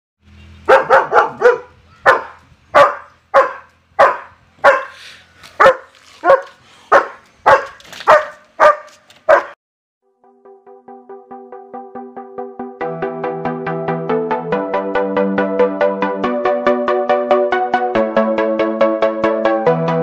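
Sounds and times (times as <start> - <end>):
dog barking: 0.7 - 5.0, 5.6 - 9.6
electronic music with steady beat: 10.6 - 20.0.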